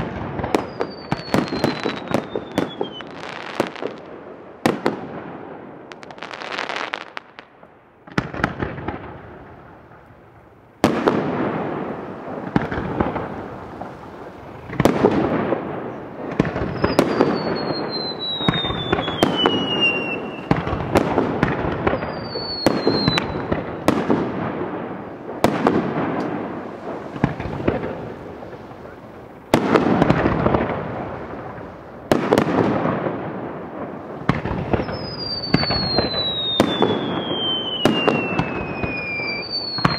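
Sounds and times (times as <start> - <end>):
firework bangs: 0.0 - 39.9
falling firework whistles: 0.5 - 3.8, 15.9 - 24.1, 34.3 - 39.9.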